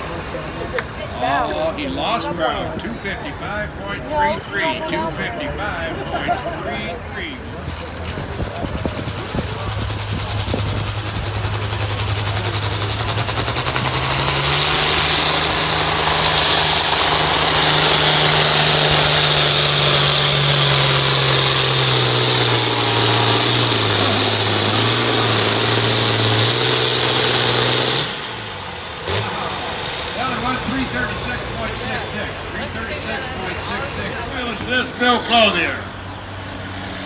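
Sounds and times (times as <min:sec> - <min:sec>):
tractor engine at full throttle: 0:00.0 - 0:37.0
turbo whine: 0:08.9 - 0:32.3.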